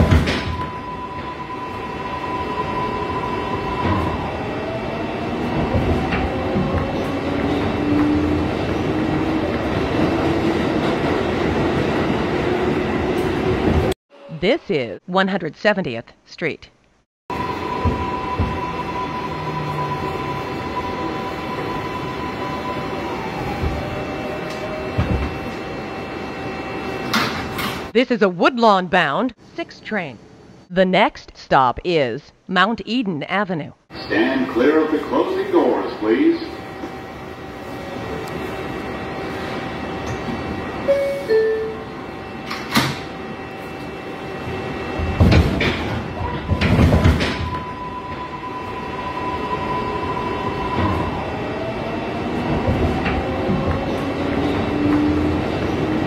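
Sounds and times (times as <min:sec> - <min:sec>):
subway car rumble and whine: 0:00.0 - 0:14.5, 0:17.3 - 0:28.0, 0:33.9 - 0:56.0
two-note door chime: 0:40.9 - 0:41.9
sliding doors thudding shut: 0:45.0 - 0:47.6.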